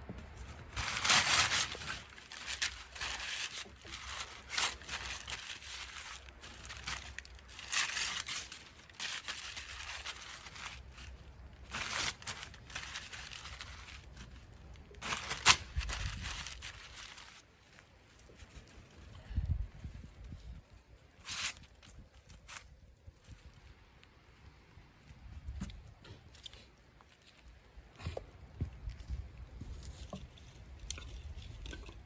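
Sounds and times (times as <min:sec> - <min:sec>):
paper cracking: 0:00.5 - 0:18.4
paper tearing and crumpling: 0:00.6 - 0:17.5, 0:21.2 - 0:22.8.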